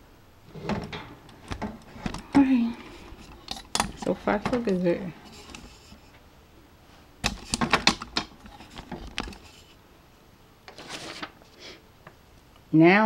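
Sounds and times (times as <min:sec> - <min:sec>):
metal cart clicks and rattles: 0:00.5 - 0:02.3.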